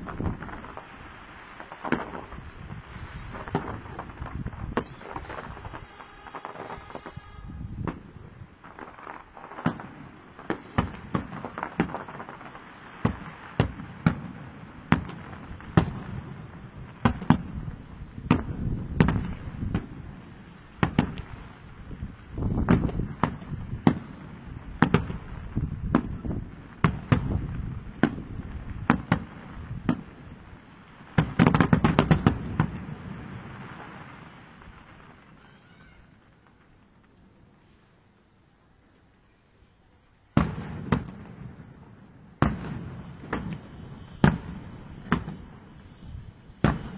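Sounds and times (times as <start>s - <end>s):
firework shells bursting: 0.0s - 30.1s, 40.2s - 46.9s.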